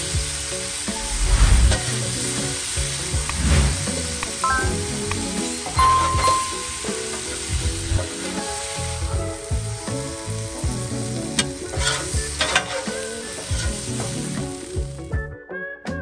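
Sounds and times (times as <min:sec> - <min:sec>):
food sizzling on griddle: 0:00.0 - 0:15.1
background music: 0:00.0 - 0:16.0
metal spatula scraping griddle: 0:11.7 - 0:13.8.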